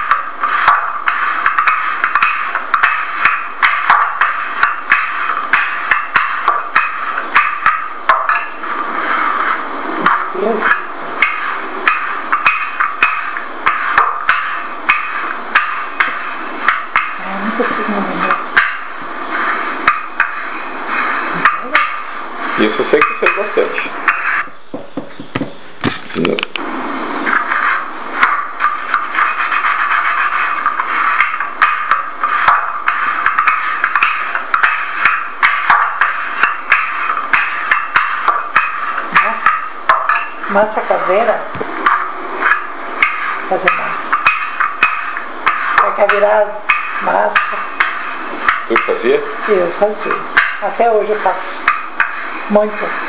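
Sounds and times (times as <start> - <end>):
sharp wooden knocks: 0.0 - 8.6, 9.4 - 17.2, 22.7 - 26.1
rolling pin rustling on dough: 0.0 - 53.0
wooden knocks: 23.0 - 26.2.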